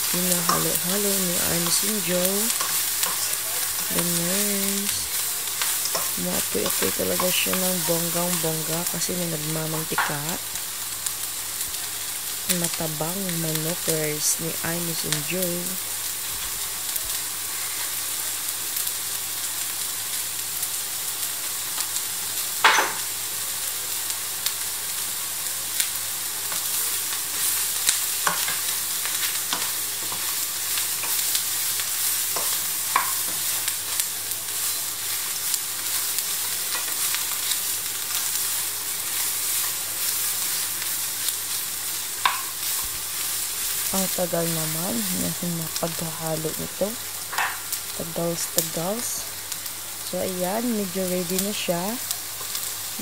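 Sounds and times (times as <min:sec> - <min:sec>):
food sizzling in frying pan: 0:00.0 - 0:53.0.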